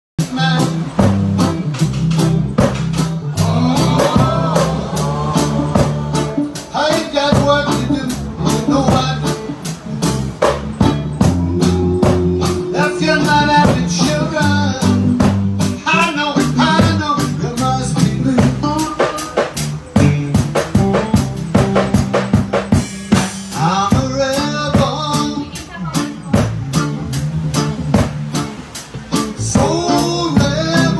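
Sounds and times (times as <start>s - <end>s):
man singing into microphone: 0.2s - 1.4s, 3.3s - 9.6s, 11.2s - 20.9s, 23.5s - 25.7s, 29.2s - 30.9s
reggae band playing: 0.2s - 30.9s.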